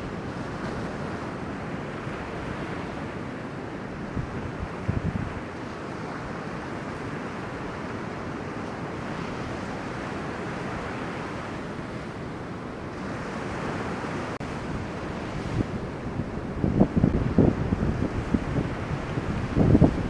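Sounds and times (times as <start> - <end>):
wind buffeting microphone: 4.0 - 6.6, 12.9 - 20.0
breaking surf: 12.9 - 20.0.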